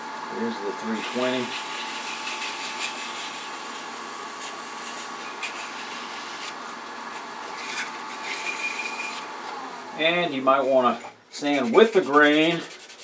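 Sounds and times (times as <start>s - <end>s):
wood lathe running: 0.3s - 11.0s
sandpaper rubbing hiss: 0.9s - 6.6s, 11.5s - 13.0s.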